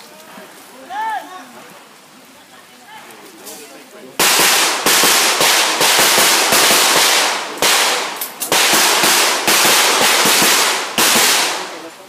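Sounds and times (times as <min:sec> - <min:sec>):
handgun shots echoing: 0:04.2 - 0:11.7.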